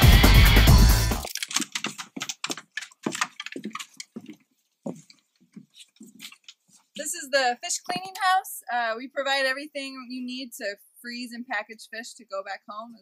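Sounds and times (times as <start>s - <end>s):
footsteps on wooden boards: 1.2s - 6.9s.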